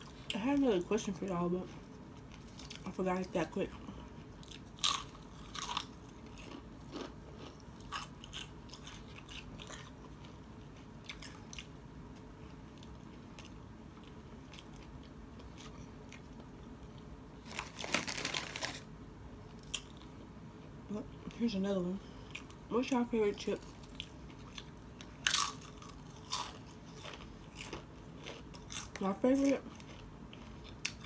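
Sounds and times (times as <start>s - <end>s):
chewing crunchy chips: 1.6s - 18.9s, 19.5s - 20.2s, 23.6s - 31.0s.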